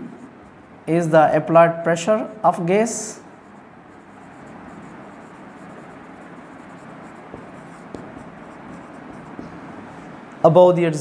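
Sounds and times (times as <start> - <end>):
marker scratching on whiteboard: 3.3 - 10.3
small taps: 7.3 - 9.7.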